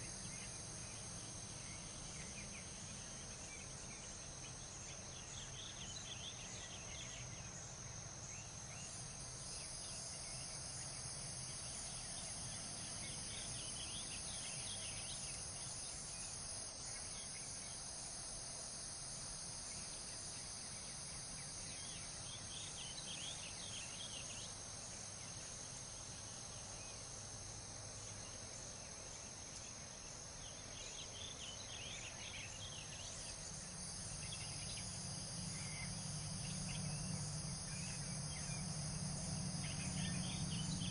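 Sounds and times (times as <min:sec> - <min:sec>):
crickets chorus: 0:00.0 - 0:40.9
low steady rumble: 0:33.1 - 0:40.9.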